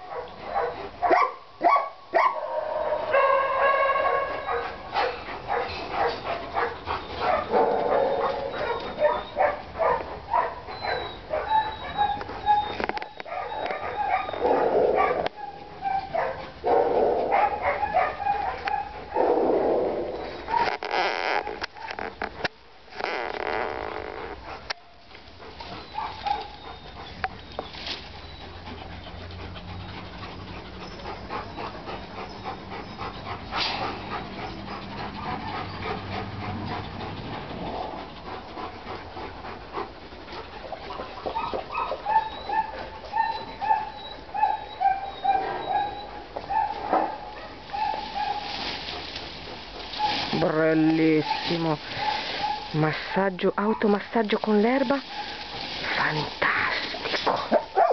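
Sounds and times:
rustling of grass and leaves: 0.0 - 57.9
dog crying: 5.5 - 16.4, 41.3 - 48.6.

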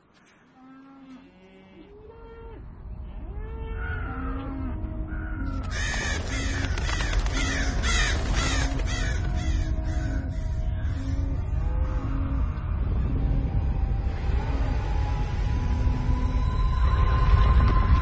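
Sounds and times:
crows cawing: 5.1 - 11.3
deep low rumble: 9.0 - 18.0.

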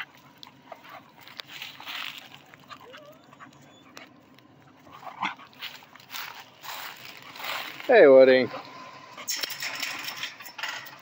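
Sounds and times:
dogs scuffling: 0.0 - 10.5
dog whining: 2.6 - 5.4.

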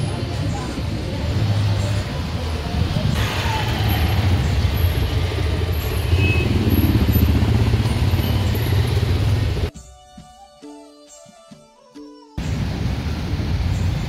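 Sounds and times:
motorcycle engines: 0.0 - 9.7
street traffic: 0.0 - 9.7, 12.4 - 14.0
quiet instrumental music: 9.7 - 12.7.

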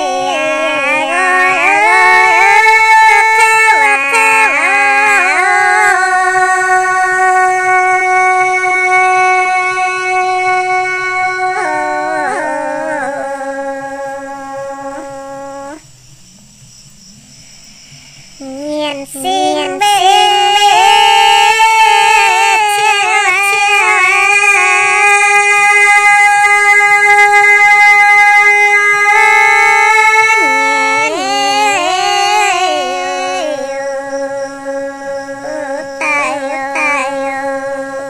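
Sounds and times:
woman singing a long high note: 0.0 - 15.8, 18.4 - 38.0.

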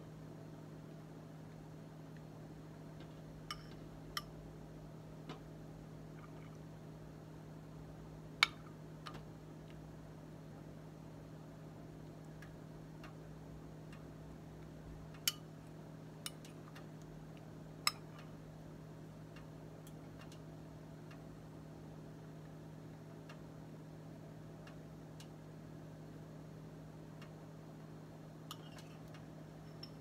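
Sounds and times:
steady low hum: 0.0 - 30.0
light ticks and clicks: 12.0 - 13.2, 13.8 - 15.5, 16.2 - 18.4, 19.3 - 21.3, 23.2 - 23.5, 24.6 - 25.4, 27.1 - 27.4, 28.5 - 30.0.

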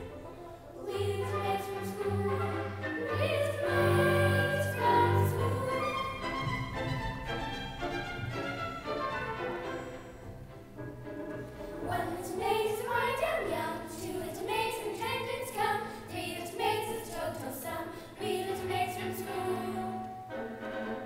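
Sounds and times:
group of high voices singing: 0.8 - 6.6, 11.8 - 20.2.

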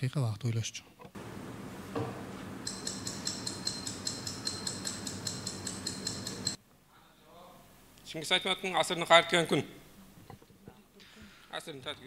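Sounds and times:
steady hiss: 1.2 - 8.4
countdown clock ticking: 2.6 - 6.6.

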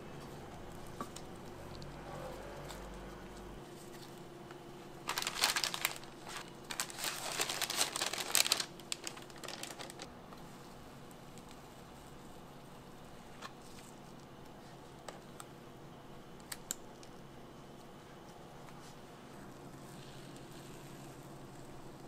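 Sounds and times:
paper sleeve crinkling: 5.0 - 10.1.

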